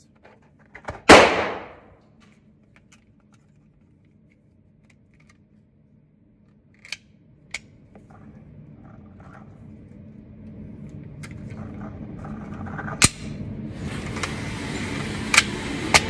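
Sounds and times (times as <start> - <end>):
gunshot echoing: 1.1 - 1.9.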